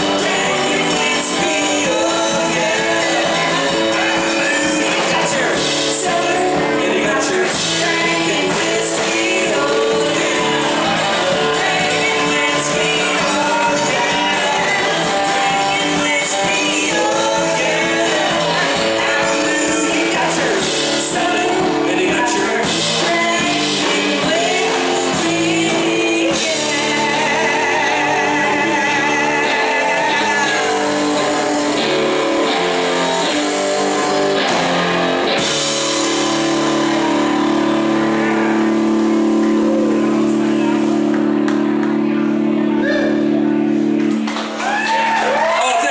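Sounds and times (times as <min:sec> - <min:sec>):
woman singing: 0:00.0 - 0:31.8
live band playing: 0:00.0 - 0:45.9.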